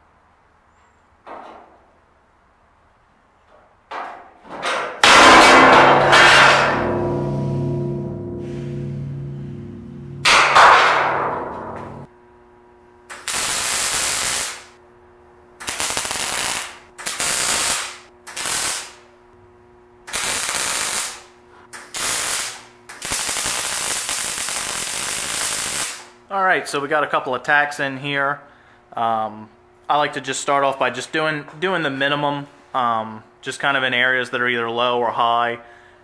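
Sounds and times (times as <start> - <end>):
welding arc crackle: 13.1 - 14.8, 15.6 - 19.1, 20.1 - 26.2.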